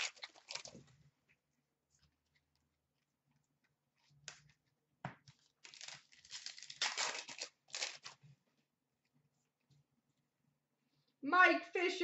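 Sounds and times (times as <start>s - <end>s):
wrapper tearing and crinkling: 0.0s - 0.8s, 5.6s - 8.2s.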